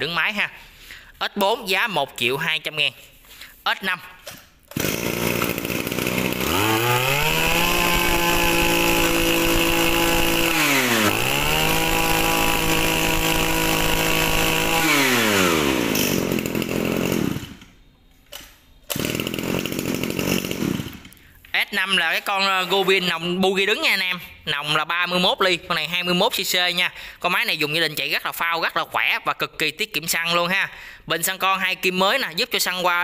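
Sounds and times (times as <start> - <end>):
brush-cutter engine revving: 4.7 - 17.8, 18.9 - 21.2.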